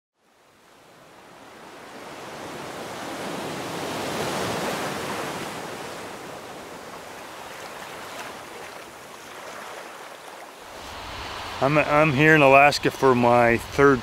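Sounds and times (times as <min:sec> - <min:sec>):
rushing surf: 0:00.5 - 0:14.0.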